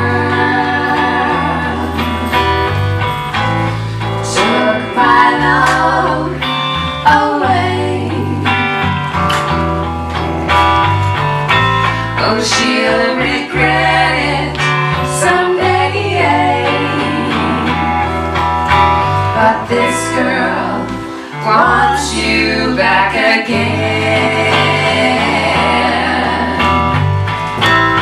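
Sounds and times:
women singing in harmony: 0.0s - 2.8s, 4.2s - 8.9s, 12.1s - 18.3s, 19.3s - 27.0s
electric guitar: 0.0s - 28.0s
low bass notes: 0.0s - 28.0s.

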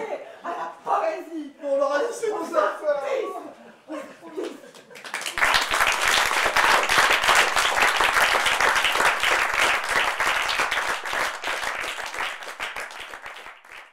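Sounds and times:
audience applauding: 4.4s - 13.9s.

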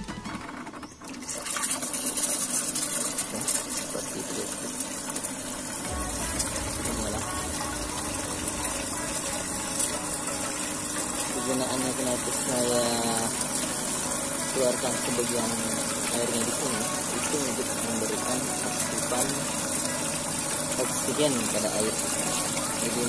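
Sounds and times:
water pouring into tank: 0.4s - 23.0s.

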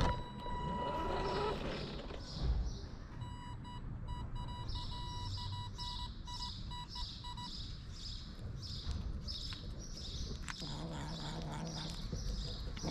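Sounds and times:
electronic beeping: 0.0s - 1.6s, 3.2s - 7.6s.

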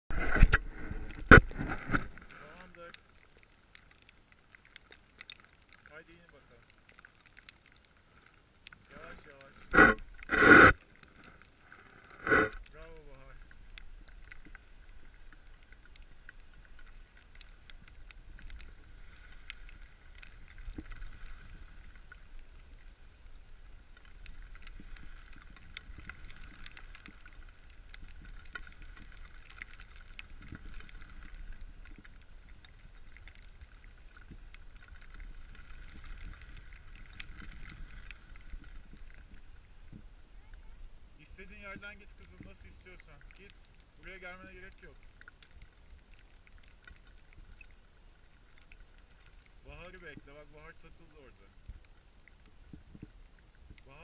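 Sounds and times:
wind rumble on microphone: 0.1s - 2.3s
small clicks: 0.1s - 54.0s
skis scraping over snow: 8.9s - 11.5s.

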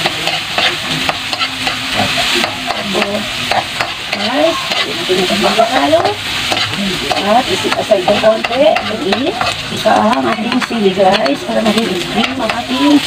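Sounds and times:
aromatics sizzling in hot oil: 0.0s - 13.0s
metal spoon scraping a wok: 0.0s - 13.0s.

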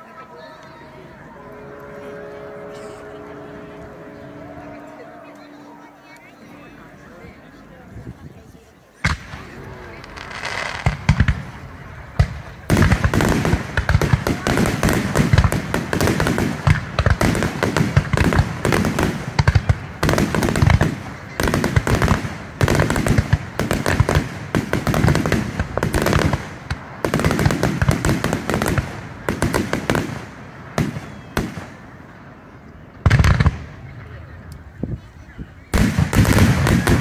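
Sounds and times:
fireworks booming and crackling: 9.0s - 37.0s.

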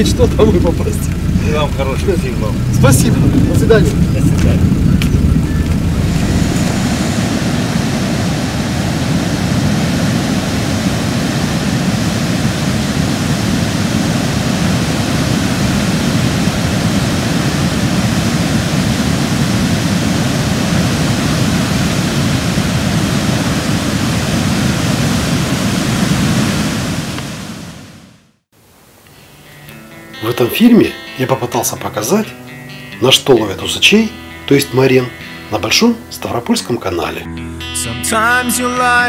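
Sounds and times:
churning whitewater rushing: 0.0s - 27.9s.

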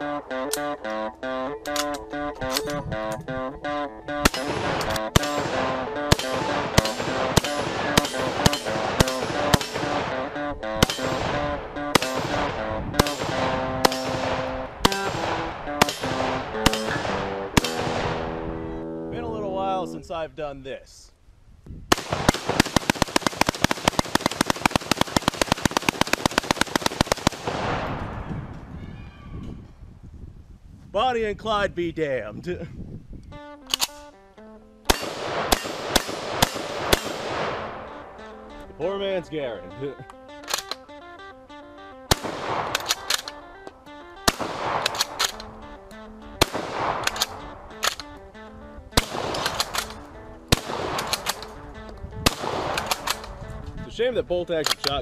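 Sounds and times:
background music: 0.0s - 20.3s, 33.2s - 55.0s
rapid sharp bangs: 4.2s - 18.4s, 21.9s - 28.1s, 34.9s - 37.9s
loud gunshots with ringing tail: 4.2s - 18.6s, 21.9s - 28.3s, 34.9s - 38.2s, 42.1s - 43.3s, 44.2s - 45.4s, 46.4s - 47.8s, 49.0s - 51.6s, 52.2s - 53.2s.

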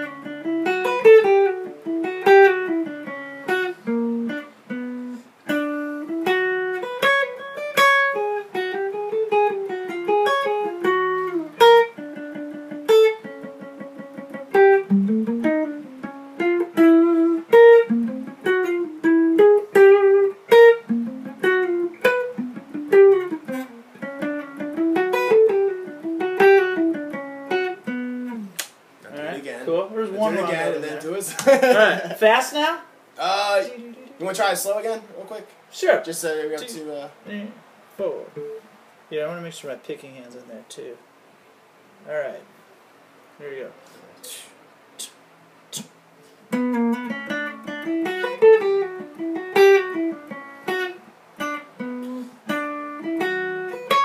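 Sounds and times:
slow guitar melody: 0.0s - 28.7s, 38.2s - 38.8s, 45.7s - 54.0s.

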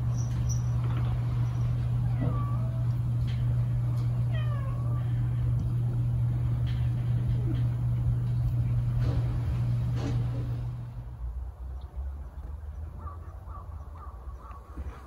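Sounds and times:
steady low hum: 0.0s - 15.0s
cat meowing: 4.2s - 5.2s.

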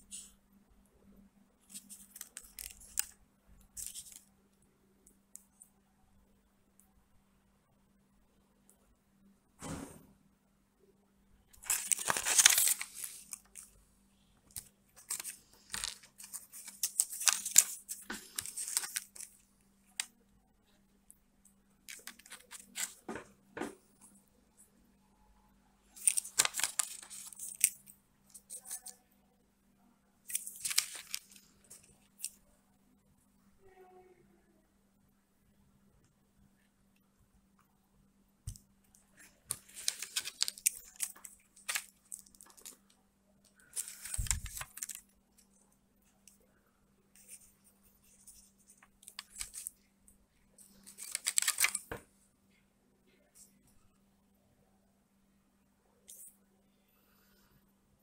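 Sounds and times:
faint steady hum: 0.0s - 58.0s
paper rustling and crinkling: 1.7s - 3.1s, 3.8s - 4.2s, 11.6s - 13.8s, 14.5s - 19.4s, 21.9s - 23.2s, 26.0s - 28.9s, 30.3s - 32.3s, 39.2s - 42.8s, 43.6s - 45.1s, 47.2s - 49.8s, 50.6s - 52.0s.

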